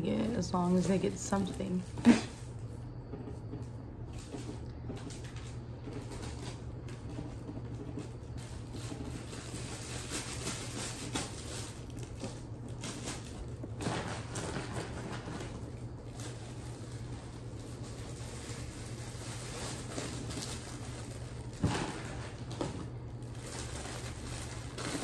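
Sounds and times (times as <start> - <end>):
steady low hum: 0.0 - 25.0
wrappers and plastic bags rustling: 0.0 - 25.0.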